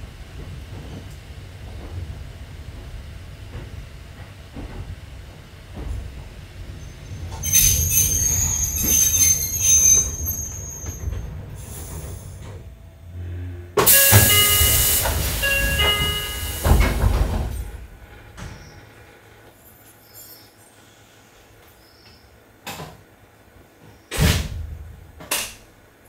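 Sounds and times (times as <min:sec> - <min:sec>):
train wheels squealing on rails: 0:06.7 - 0:12.6, 0:13.2 - 0:17.7, 0:18.4 - 0:19.0, 0:19.9 - 0:22.2.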